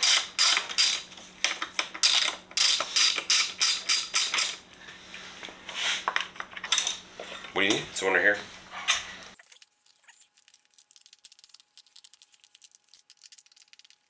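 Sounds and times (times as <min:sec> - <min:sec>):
ratchet wrench clicking: 0:02.0 - 0:04.6.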